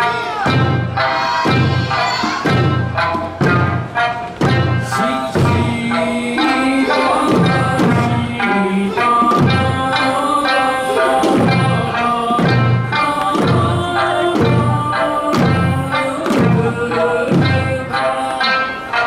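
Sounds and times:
folk melody: 0.0 - 19.0
taiko drums: 0.0 - 19.0
person singing: 4.6 - 19.0.

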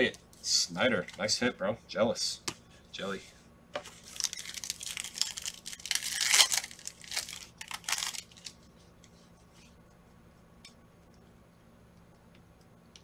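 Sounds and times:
foil wrapper tearing and crinkling: 4.0 - 8.6.

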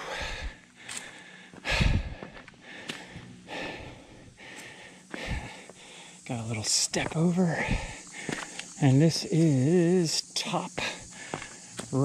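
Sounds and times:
person breathing heavily: 0.0 - 6.3, 7.4 - 8.8, 10.7 - 11.8.

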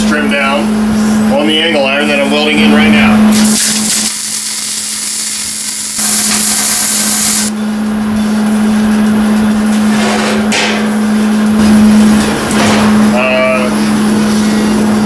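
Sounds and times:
welding arc crackling: 3.3 - 7.5.

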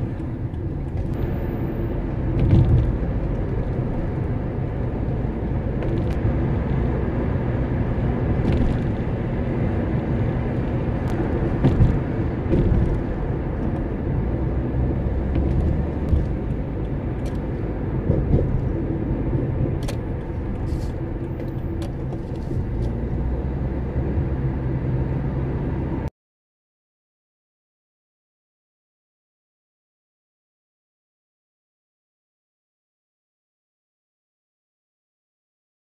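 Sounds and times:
car engine and tyre rumble: 0.0 - 26.1.

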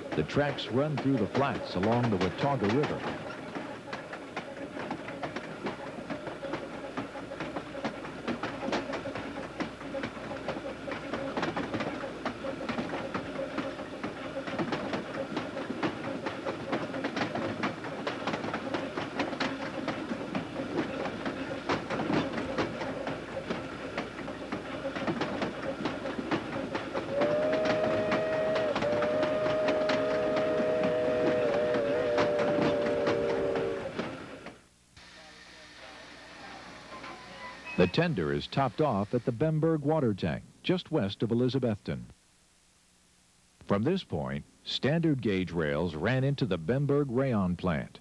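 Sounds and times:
train wheels clicking over rail joints: 0.0 - 34.6
steam locomotive whistle: 27.1 - 34.3.

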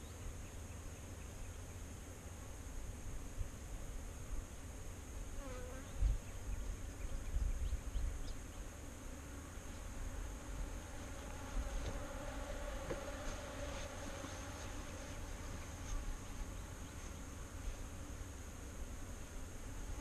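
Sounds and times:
wind rumbling on microphone: 5.8 - 8.6
bees buzzing: 8.3 - 20.0.

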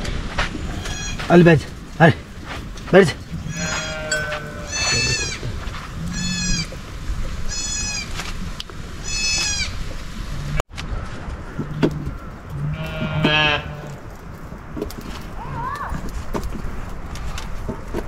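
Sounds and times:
lamb bleating: 3.4 - 5.4, 6.0 - 6.7, 7.5 - 8.1, 12.6 - 14.0.

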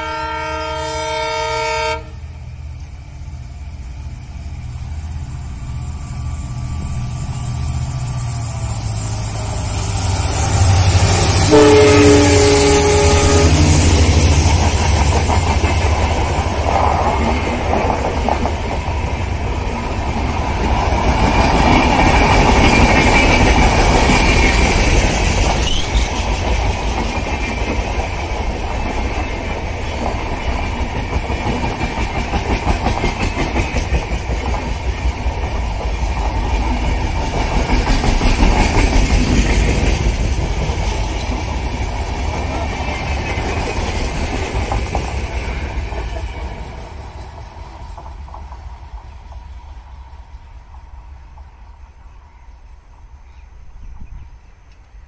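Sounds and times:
locomotive horn: 0.0 - 2.4, 11.2 - 14.4
train coaches rumbling past: 0.0 - 55.0
wheels clickety-clack over rails: 6.7 - 51.8.

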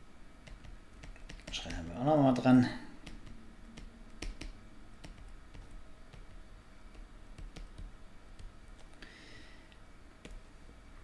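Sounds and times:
stylus clicking on tablet screen: 0.4 - 9.0.

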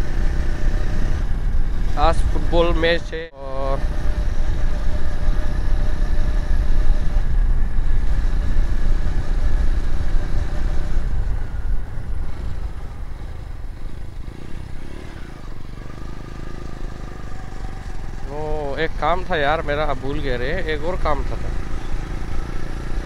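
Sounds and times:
motorcycle engine running: 0.0 - 23.0
wind rumble on microphone: 3.6 - 14.3.

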